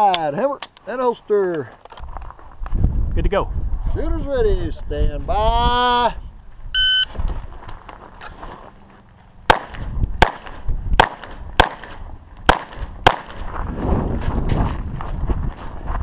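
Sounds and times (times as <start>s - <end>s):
scuffing movement: 6.5s - 9.4s, 13.4s - 16.0s
pistol shots: 9.5s - 13.4s.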